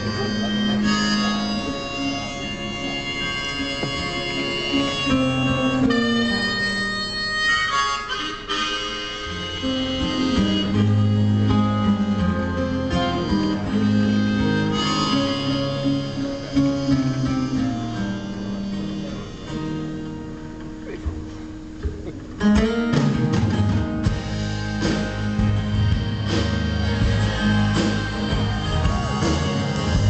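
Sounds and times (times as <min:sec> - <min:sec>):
reedy sustained melody: 0:00.0 - 0:21.5
acoustic guitar: 0:00.0 - 0:30.0
drums: 0:03.1 - 0:07.8, 0:08.4 - 0:30.0.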